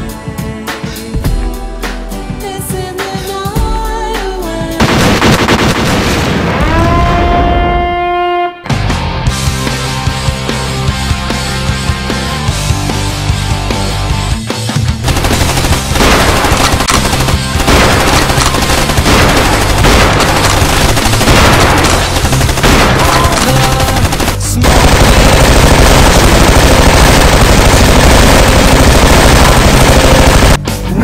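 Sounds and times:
music: 0:00.0 - 0:26.4, 0:27.1 - 0:31.0
machine-gun fire: 0:04.8 - 0:06.7, 0:15.0 - 0:30.6.

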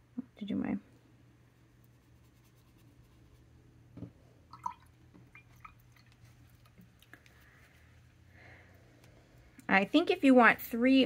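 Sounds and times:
small watery sounds: 0:04.4 - 0:07.7.

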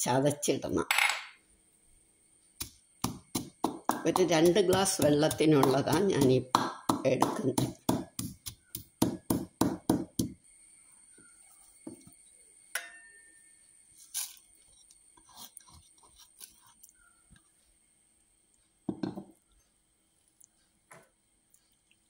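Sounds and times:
pestle pounding in mortar: 0:02.6 - 0:10.4
spices scraping into steel pot: 0:14.0 - 0:16.9.

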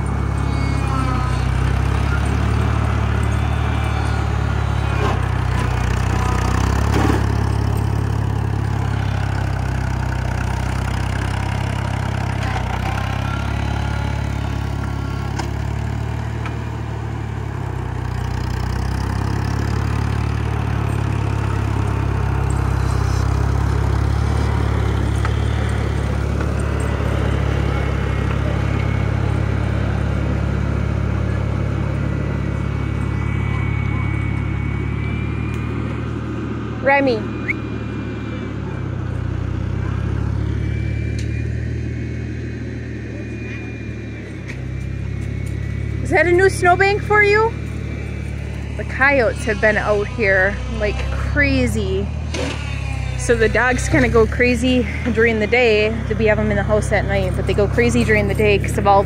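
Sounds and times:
loader clank: 0:00.0 - 0:16.9
tractor engine running: 0:00.0 - 0:59.0.

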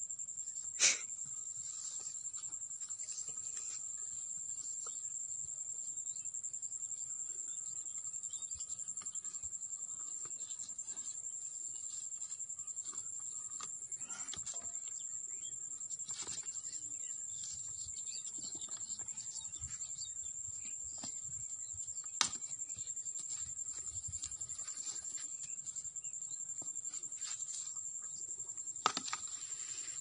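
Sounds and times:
insect chirring: 0:00.0 - 0:30.0.

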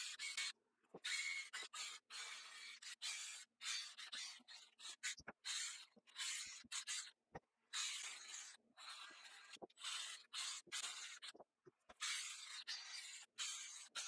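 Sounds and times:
rasping scraping on metal: 0:01.1 - 0:11.3.

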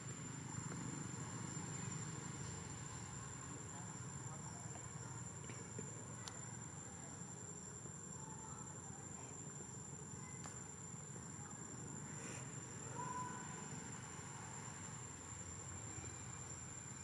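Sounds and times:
faint clicks: 0:05.4 - 0:06.4
high-pitched insect drone: 0:06.2 - 0:17.0.

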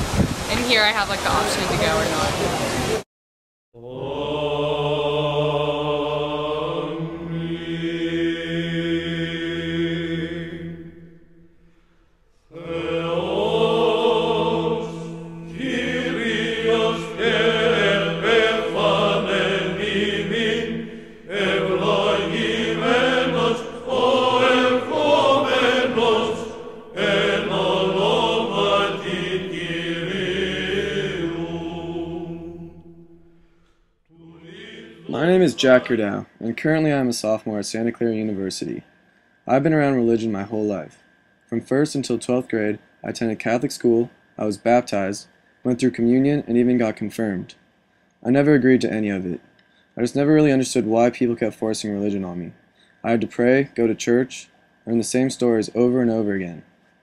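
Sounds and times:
choral voices chanting: 0:03.8 - 0:36.5.

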